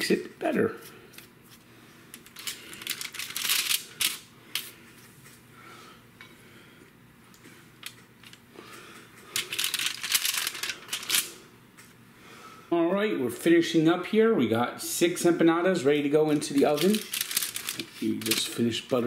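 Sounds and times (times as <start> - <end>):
aluminium foil crinkling: 2.1 - 4.7, 9.3 - 11.4, 16.4 - 19.0.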